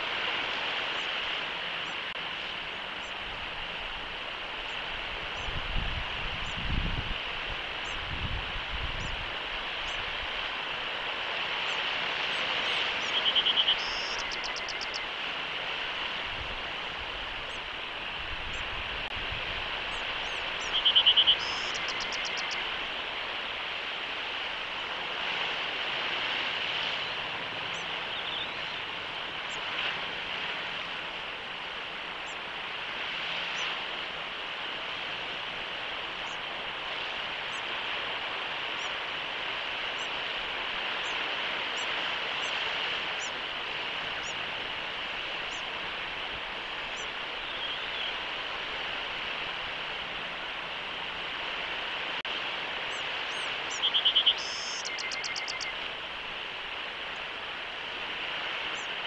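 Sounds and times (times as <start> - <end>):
faint bird chirps: 13.0 - 15.1, 19.9 - 22.7, 52.9 - 55.8.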